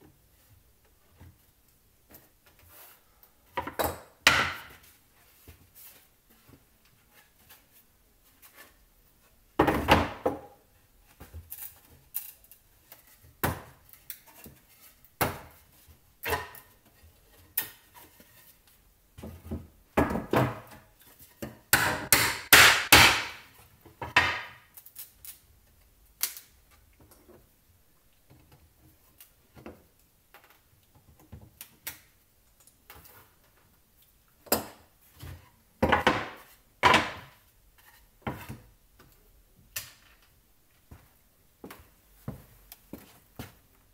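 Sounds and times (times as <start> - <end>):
wooden boards knocking on workbench: 24.0 - 24.6, 35.8 - 37.3.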